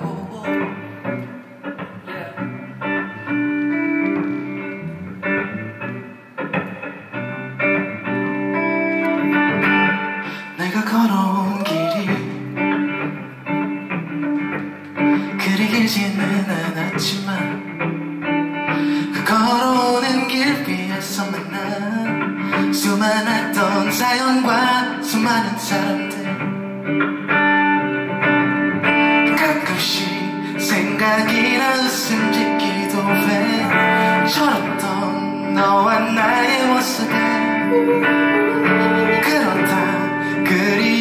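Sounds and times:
electric guitar playing: 0.0s - 41.0s
person singing wordlessly: 10.6s - 12.5s, 29.3s - 41.0s.

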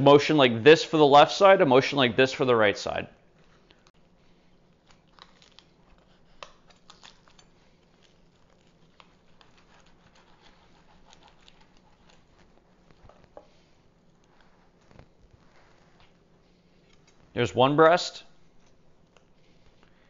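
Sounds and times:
turkey skin crackling and tearing: 4.7s - 12.5s.

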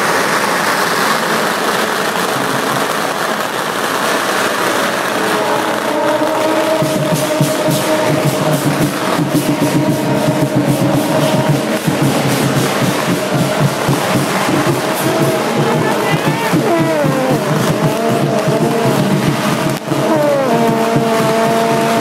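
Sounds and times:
loud crowd: 0.0s - 22.0s
drums beating: 2.2s - 22.0s
brass horn notes: 4.8s - 22.0s.

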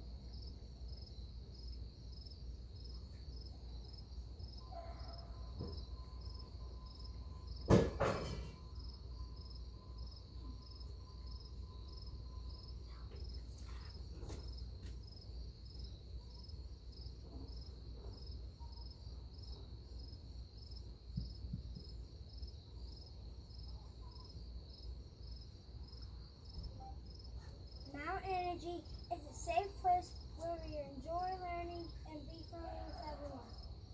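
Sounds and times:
crickets chirping: 0.0s - 33.9s
loud knock: 7.7s - 8.6s.

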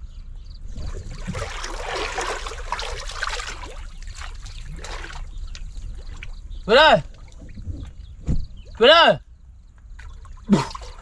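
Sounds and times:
pond water sloshing and splashing: 0.7s - 8.0s, 9.9s - 11.0s.

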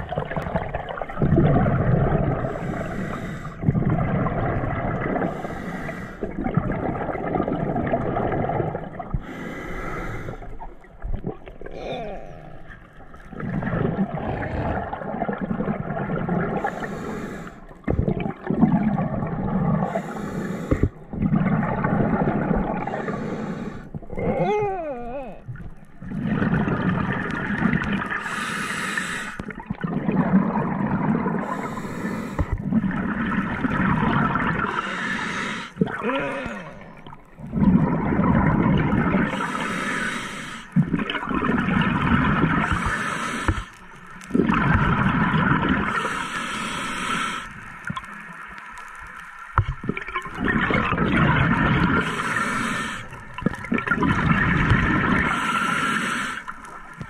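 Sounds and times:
bubbling exhalation underwater: 0.0s - 5.6s, 6.2s - 9.4s, 11.0s - 16.8s, 17.8s - 20.0s, 20.8s - 23.2s, 23.9s - 28.4s, 29.4s - 31.8s, 32.4s - 35.1s, 35.8s - 40.0s, 40.7s - 43.1s, 44.3s - 46.2s, 49.7s - 56.0s
regulator breathing hiss: 2.6s - 3.6s, 5.3s - 6.2s, 9.2s - 10.5s, 16.6s - 17.6s, 19.9s - 21.0s, 22.9s - 23.9s, 28.2s - 29.4s, 31.4s - 32.5s, 34.7s - 35.8s, 39.4s - 40.8s, 42.7s - 43.7s, 45.9s - 47.6s, 52.0s - 53.2s, 55.3s - 56.6s.

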